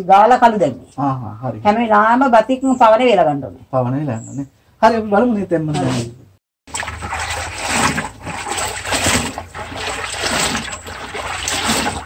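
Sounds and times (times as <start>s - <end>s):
water splashing and dripping: 6.7s - 12.0s.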